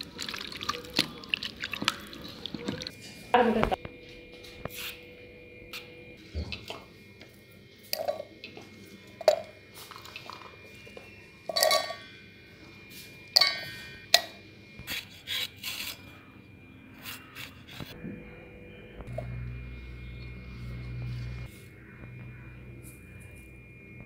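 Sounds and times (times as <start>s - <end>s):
clinks and knocks of metal jar: 11.5s - 12.0s.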